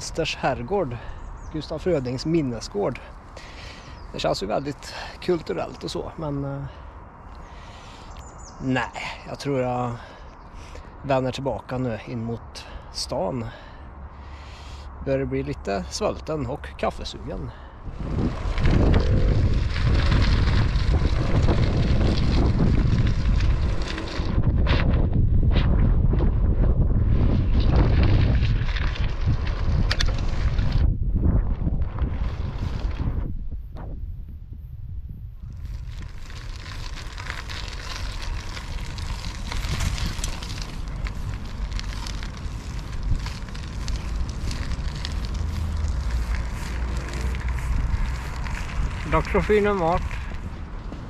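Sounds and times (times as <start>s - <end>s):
bicycle crackles and clicks: 0.0s - 11.0s, 13.4s - 33.3s, 35.3s - 51.0s
tyres rumbling on asphalt: 0.0s - 33.2s, 35.5s - 51.0s
wind buffeting microphone: 17.2s - 51.0s.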